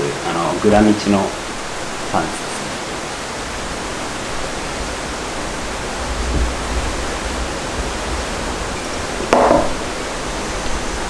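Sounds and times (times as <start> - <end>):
steady rushing hiss: 0.0 - 11.0.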